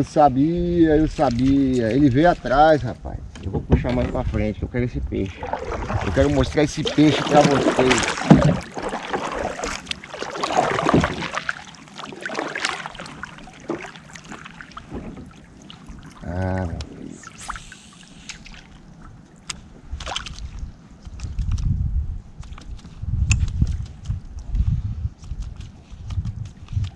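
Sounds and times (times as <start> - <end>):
paddle strokes splashing water: 5.2 - 20.6.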